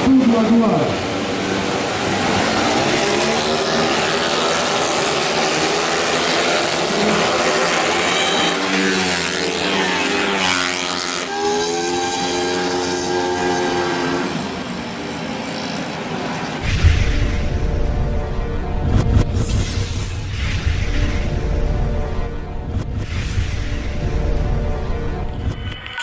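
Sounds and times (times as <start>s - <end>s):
scooter engines buzzing at high revs: 1.0s - 16.6s.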